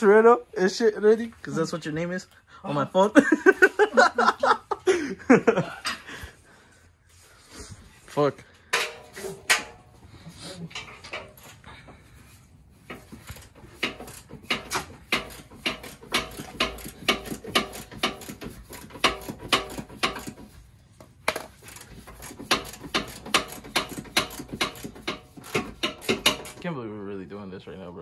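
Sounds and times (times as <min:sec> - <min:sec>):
ratchet wrench clicking: 0:12.9 - 0:20.6, 0:21.3 - 0:26.6.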